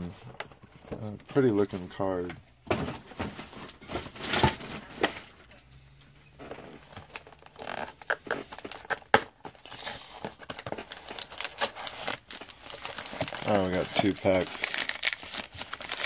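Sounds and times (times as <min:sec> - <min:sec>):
packaging crinkling: 0:06.4 - 0:16.0.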